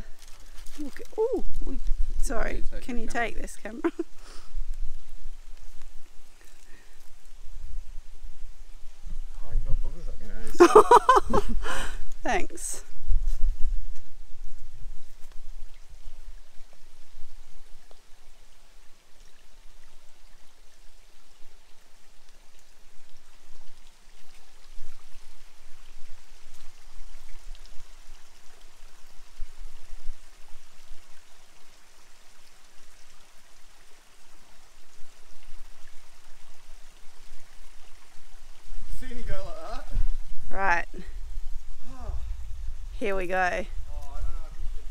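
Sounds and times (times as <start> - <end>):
running water: 0.0 - 44.9
low rumbles on microphone: 11.3 - 17.9.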